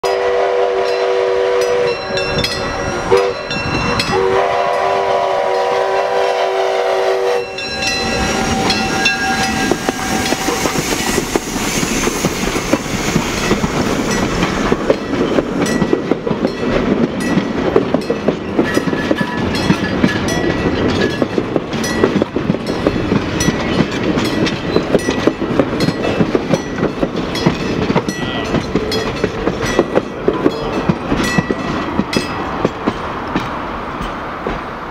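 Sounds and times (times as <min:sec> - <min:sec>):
steam locomotive whistle: 0:00.0 - 0:13.6
wheels clacking over rail joints: 0:07.5 - 0:34.9.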